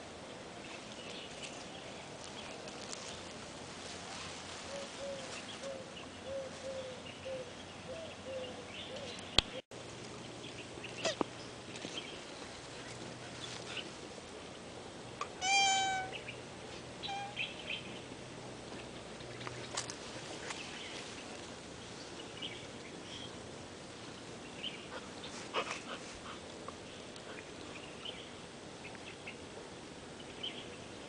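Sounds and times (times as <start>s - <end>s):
tortoise high-pitched call: 15.3s - 16.4s, 17.0s - 17.8s.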